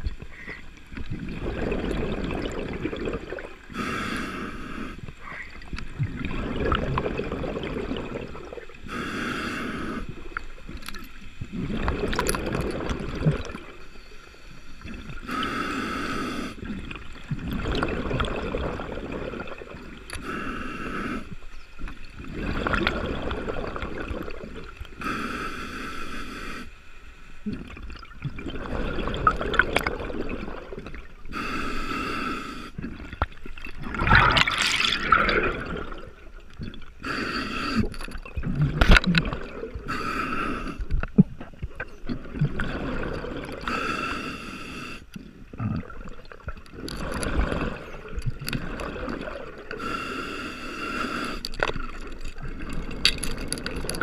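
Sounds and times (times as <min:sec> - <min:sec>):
exhaled bubbles gurgling: 0:00.0 - 0:08.9, 0:09.6 - 0:13.9, 0:14.8 - 0:25.1, 0:27.4 - 0:44.4, 0:45.1 - 0:49.9, 0:50.8 - 0:54.0
hissing regulator inhale: 0:03.7 - 0:05.6, 0:08.8 - 0:10.2, 0:13.9 - 0:16.8, 0:20.1 - 0:21.5, 0:24.9 - 0:26.8, 0:31.2 - 0:32.9, 0:37.0 - 0:38.2, 0:39.8 - 0:41.0, 0:43.6 - 0:45.2, 0:48.8 - 0:51.7.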